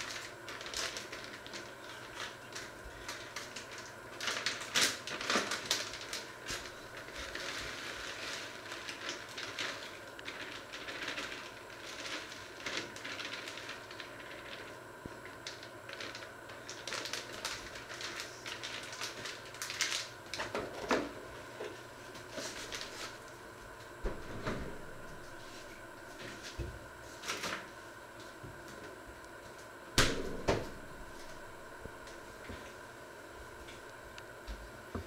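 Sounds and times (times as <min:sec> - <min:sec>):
food package crinkling: 0:00.0 - 0:20.5
loud knocks: 0:30.0 - 0:30.9.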